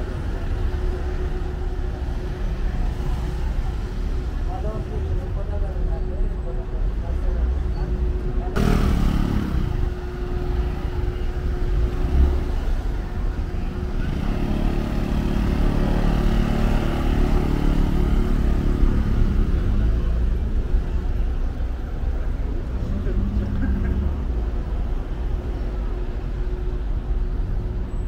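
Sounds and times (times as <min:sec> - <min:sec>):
vehicle passing by: 0:08.6 - 0:10.0.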